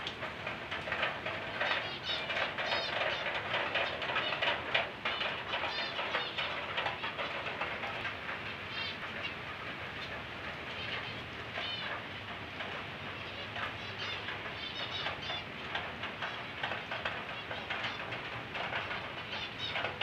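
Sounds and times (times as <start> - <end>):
small birds chirping: 1.6 - 7.3, 8.6 - 9.4, 10.7 - 11.9, 13.2 - 15.5, 18.9 - 20.0.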